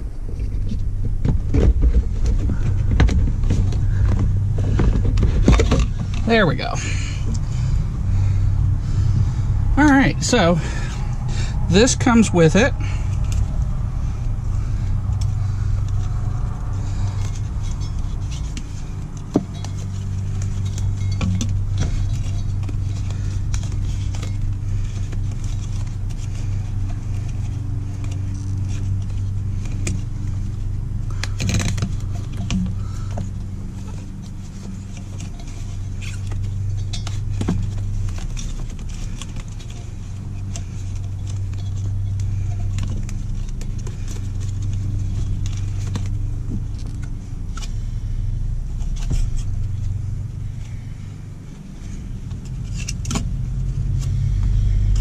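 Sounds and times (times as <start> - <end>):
steady low hum: 0.0 - 55.0
plastic parts clicking and knocking: 0.6 - 6.3, 17.1 - 47.7.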